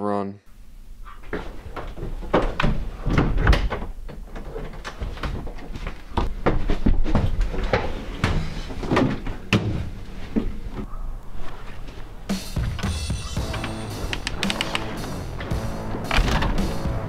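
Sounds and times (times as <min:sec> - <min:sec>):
hurried footsteps: 0:01.0 - 0:17.0
door thumps and knocks: 0:12.6 - 0:17.0.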